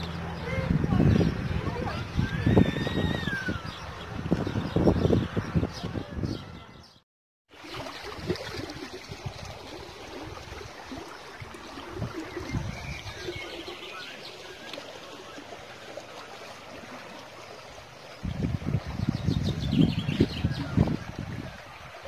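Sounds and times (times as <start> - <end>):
water running in a channel: 0.0 - 6.2, 7.5 - 22.0
birds chirping: 0.0 - 7.0, 10.8 - 16.4, 17.4 - 21.9.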